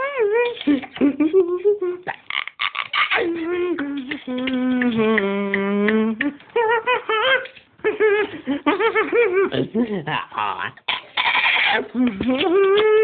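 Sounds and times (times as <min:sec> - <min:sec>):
person humming and singing: 0:00.0 - 0:02.3, 0:03.0 - 0:08.6, 0:11.8 - 0:13.0.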